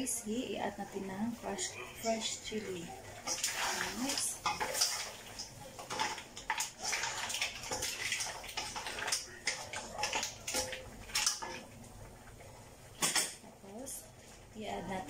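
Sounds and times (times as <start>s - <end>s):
spatula stirring food in wok: 2.3s - 12.8s.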